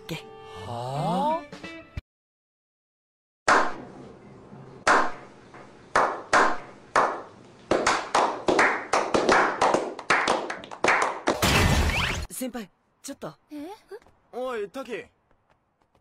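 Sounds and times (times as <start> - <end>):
group of men clapping: 6.0 - 11.4.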